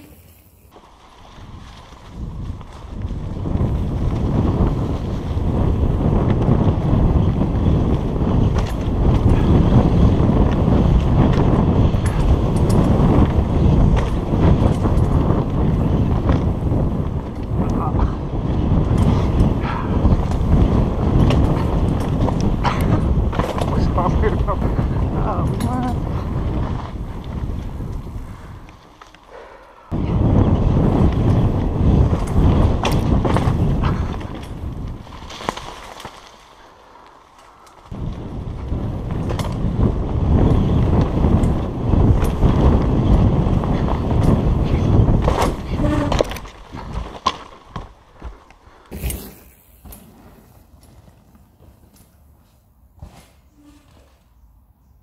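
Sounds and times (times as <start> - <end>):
bike clicks and rattles: 0.0 - 54.4
tyres rumbling on dirt: 0.7 - 29.3
wind buffeting microphone: 1.0 - 36.2, 36.9 - 49.3.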